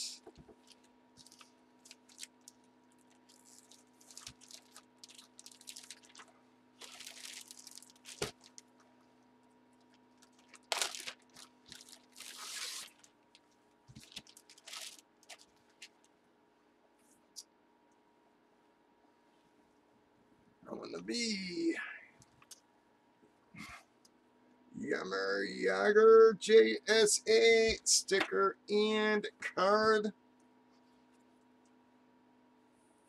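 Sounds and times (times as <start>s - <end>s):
plastic bag crinkling: 0.5s - 8.9s, 9.8s - 16.1s.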